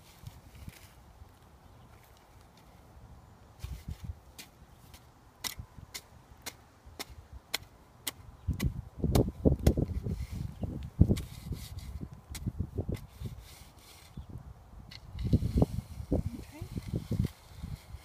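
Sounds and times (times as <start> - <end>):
shovel ticking in dry soil: 3.6 - 14.2, 14.9 - 18.0.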